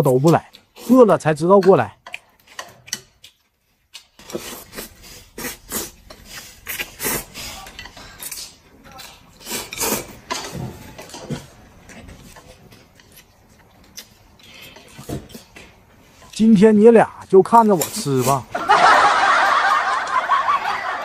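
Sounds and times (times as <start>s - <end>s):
noodles slurped: 4.2s - 8.6s.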